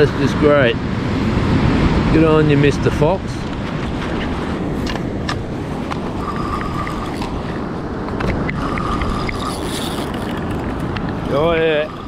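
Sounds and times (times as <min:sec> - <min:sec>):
wind: 0:00.0 - 0:12.0
rod and reel clicks: 0:05.9 - 0:07.5, 0:08.1 - 0:12.0
fishing reel whirring: 0:06.0 - 0:07.6, 0:08.5 - 0:12.0.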